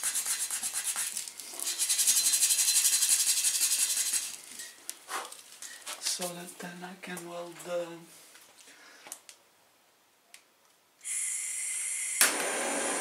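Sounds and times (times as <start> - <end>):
sandpaper rubbing on metal: 0.0 - 4.4.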